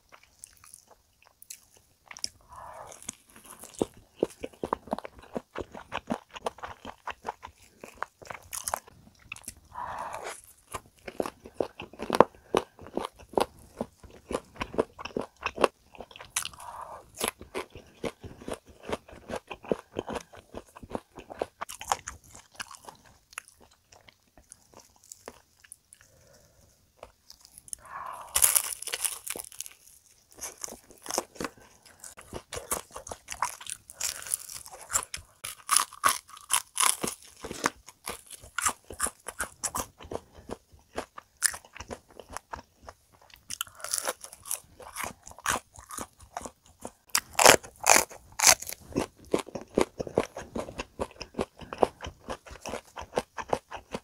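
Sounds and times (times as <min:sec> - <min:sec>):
crunchy chewing: 0:00.0 - 0:54.0
crunchy bite into fried chicken: 0:27.3 - 0:42.6, 0:43.5 - 0:54.0.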